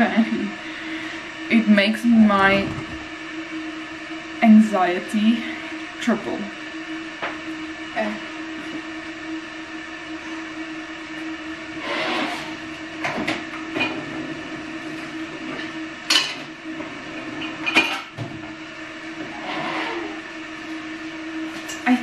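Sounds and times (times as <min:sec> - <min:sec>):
steady low hum: 0:00.0 - 0:22.0
pots and utensils clinking: 0:17.4 - 0:18.1.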